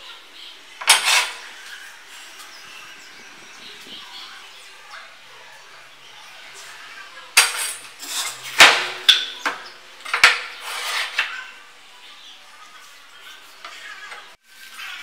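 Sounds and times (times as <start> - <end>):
metal scraping on wood: 0.8 - 4.1, 7.6 - 8.7, 10.0 - 11.3.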